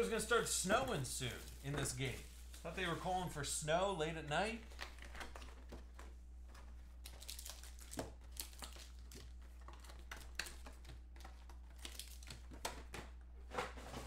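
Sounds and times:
foil wrappers crinkling: 0.0 - 3.4, 6.6 - 12.7
foil wrappers ripping: 0.6 - 3.0, 7.0 - 12.5.

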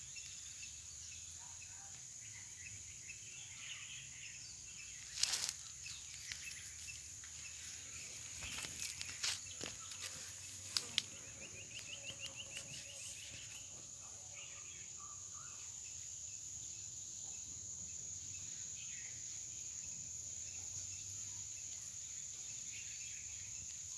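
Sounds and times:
insects trilling: 0.0 - 23.9.

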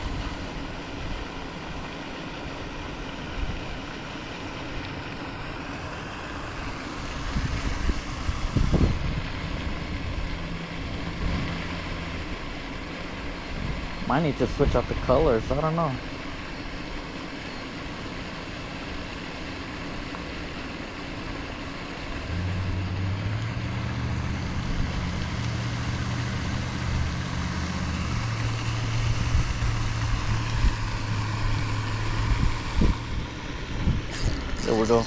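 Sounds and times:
low motor hum: 0.0 - 35.0
wind buffeting microphone: 7.2 - 12.1, 28.2 - 34.2.

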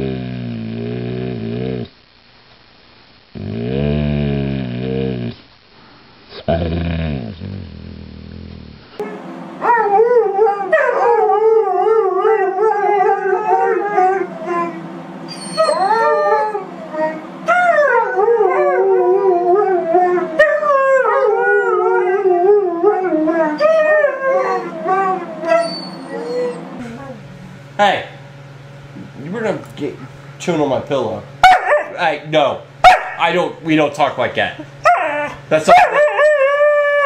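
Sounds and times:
dogs howling: 9.6 - 27.3, 31.4 - 32.1, 34.8 - 37.0.

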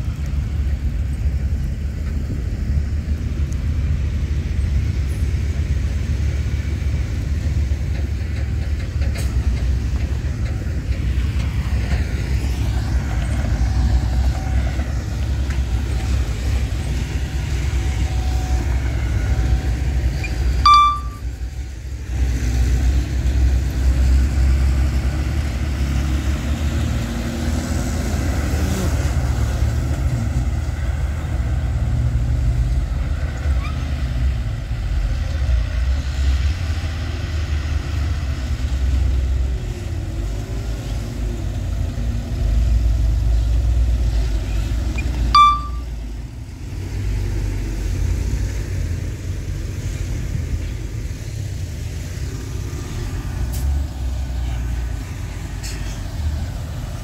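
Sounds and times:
diesel bulldozer rumble: 0.0 - 57.0
brief high beep: 20.6 - 21.2, 45.0 - 45.9.

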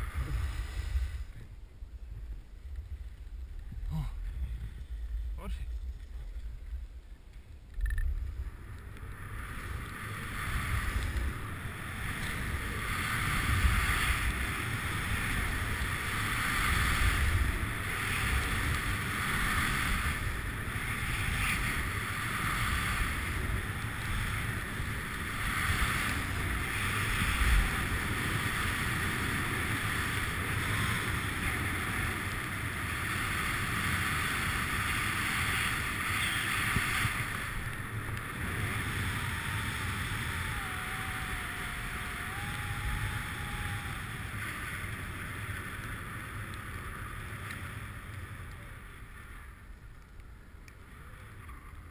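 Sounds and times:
skis hissing on snow: 0.0 - 1.4, 9.1 - 46.2
wind rumbling on microphone: 0.0 - 51.9.

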